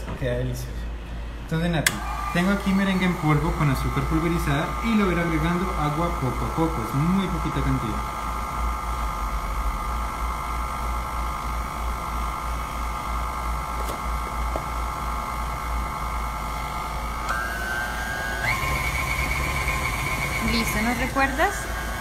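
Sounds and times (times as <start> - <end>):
electric stand mixer whirring: 1.9 - 22.0.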